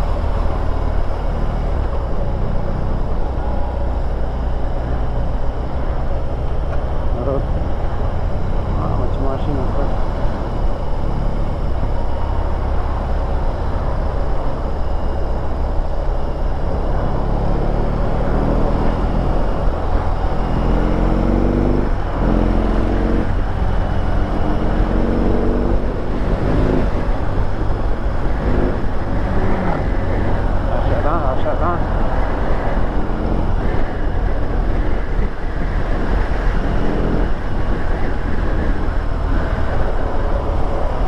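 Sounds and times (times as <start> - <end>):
motorcycle engine revving: 16.7 - 41.0.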